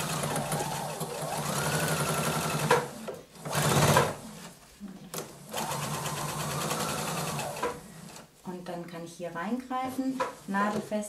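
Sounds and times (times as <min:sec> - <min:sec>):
sewing machine stitching: 0:00.0 - 0:04.5, 0:05.1 - 0:08.3.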